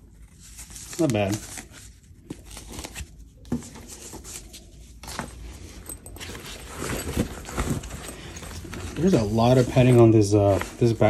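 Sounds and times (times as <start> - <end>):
fabric rustling and scraping: 0.0 - 11.0.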